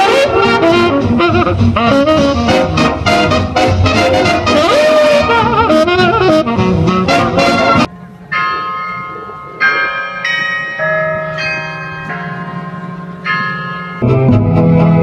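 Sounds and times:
brass band jazz music: 0.0 - 7.9, 14.0 - 15.0
carillon bells ringing: 7.8 - 14.2.

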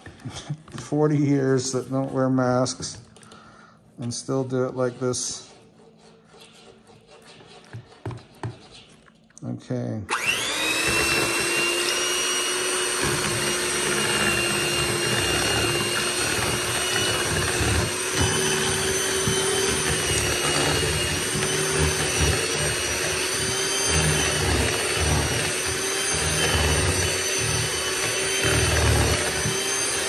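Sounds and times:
beaters churning slurry: 10.1 - 30.0
electric hand mixer whine: 10.1 - 30.0.

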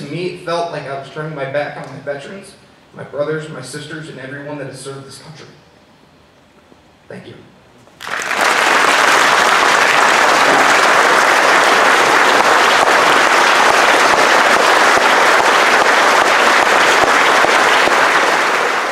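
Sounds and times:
audience applauding: 8.0 - 18.9.

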